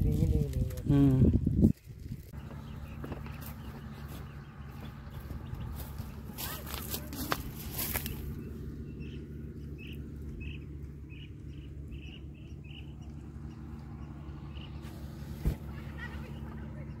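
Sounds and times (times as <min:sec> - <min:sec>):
steady low drone: 0:00.0 - 0:15.7
small bird chirping: 0:01.7 - 0:15.3.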